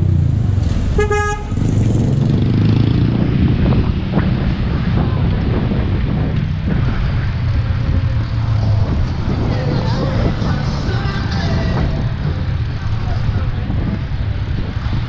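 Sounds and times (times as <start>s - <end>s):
street traffic rumble: 0.0s - 15.0s
vehicle horn toot: 1.0s - 1.7s.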